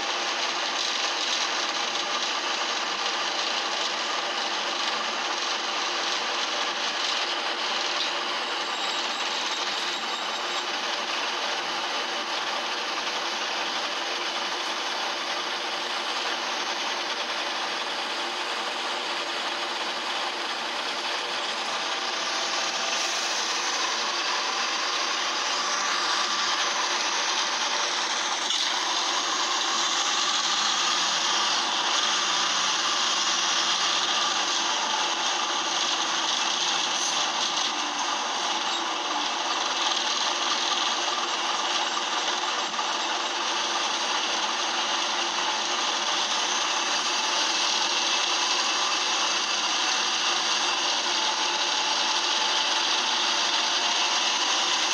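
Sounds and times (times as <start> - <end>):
bus engine rasping: 7.0 - 38.6.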